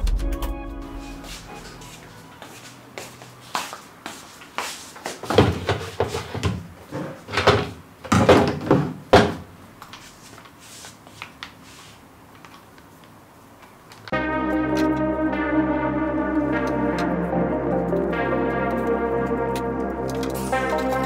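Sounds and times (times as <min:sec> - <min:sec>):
music: 0:00.0 - 0:02.8, 0:14.1 - 0:21.0.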